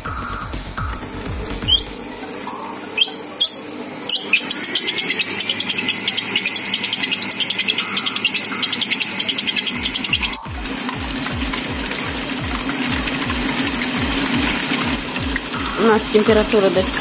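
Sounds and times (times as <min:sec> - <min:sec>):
fast even clicking: 0:00.0 - 0:17.0
kitchen machine motor humming: 0:00.0 - 0:17.0.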